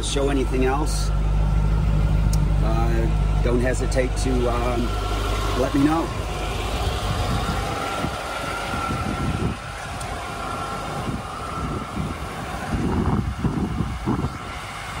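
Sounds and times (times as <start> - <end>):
vehicle engine idling: 0.0 - 15.0
wind buffeting microphone: 3.7 - 15.0.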